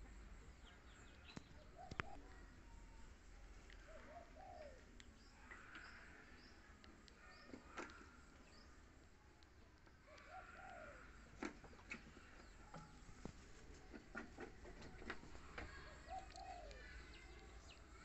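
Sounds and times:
dove cooing: 0:01.7 - 0:02.5, 0:03.8 - 0:05.0, 0:10.1 - 0:11.2, 0:15.7 - 0:17.0
faint clicks and smacks: 0:03.6 - 0:03.9, 0:04.9 - 0:17.9.

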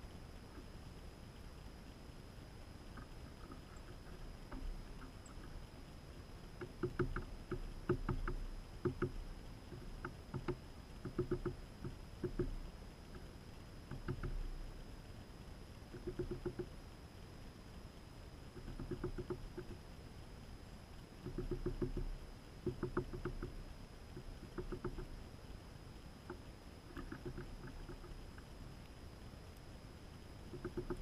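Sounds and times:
bird pecking and cracking seed: 0:26.3 - 0:28.4.

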